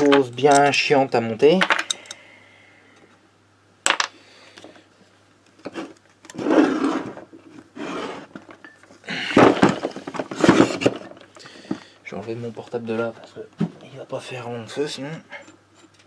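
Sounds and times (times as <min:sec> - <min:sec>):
rubbing and scraping: 0:05.7 - 0:08.5.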